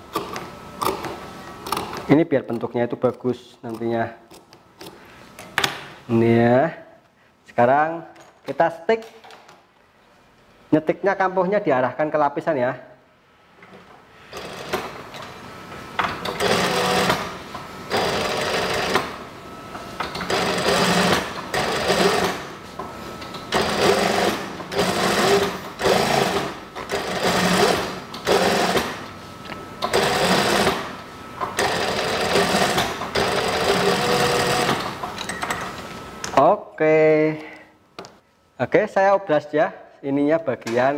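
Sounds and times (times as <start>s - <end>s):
sewing machine stitching: 16.2s - 17.3s, 17.9s - 19.1s, 20.1s - 22.5s, 23.5s - 29.0s, 29.9s - 30.9s, 31.6s - 35.0s.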